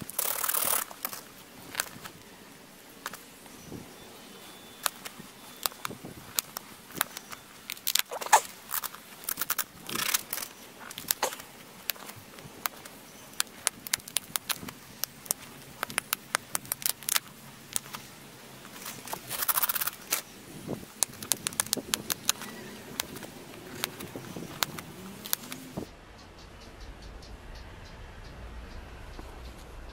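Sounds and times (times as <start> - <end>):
dense scratching: 0.0 - 2.2, 4.8 - 25.9
stone flakes snapping clicks: 4.8 - 18.0, 21.0 - 25.6.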